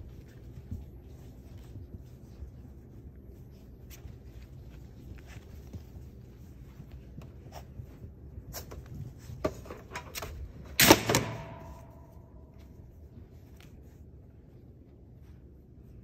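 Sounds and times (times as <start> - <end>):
puppies tapping and scuffing: 0.0 - 10.8.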